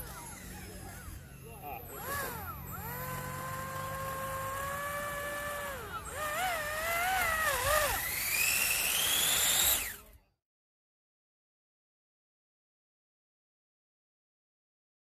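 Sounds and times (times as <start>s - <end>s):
electric fan whining: 0.0s - 10.2s.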